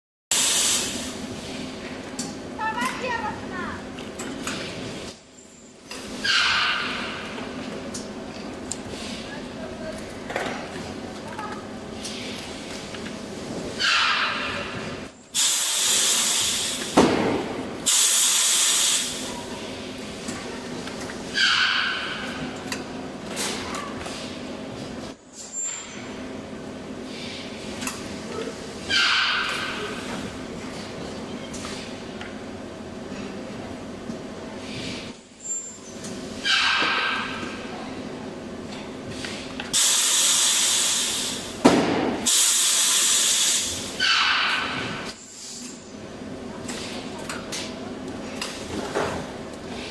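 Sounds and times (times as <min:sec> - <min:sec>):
machine air hissing: 0:00.3 - 0:01.6, 0:05.1 - 0:06.1, 0:15.0 - 0:17.0, 0:17.9 - 0:19.3, 0:25.1 - 0:26.1, 0:35.0 - 0:36.0, 0:39.8 - 0:41.6, 0:42.3 - 0:44.0, 0:45.1 - 0:46.0
compressed air hissing: 0:15.1 - 0:17.0, 0:17.9 - 0:19.2, 0:42.3 - 0:43.8, 0:45.1 - 0:46.0.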